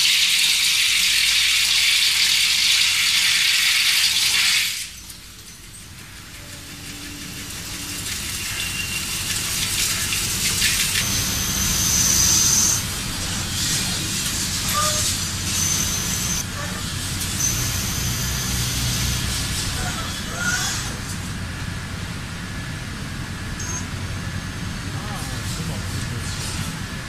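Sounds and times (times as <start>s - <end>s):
high whistle: 11.0s - 12.8s, 14.7s - 16.4s.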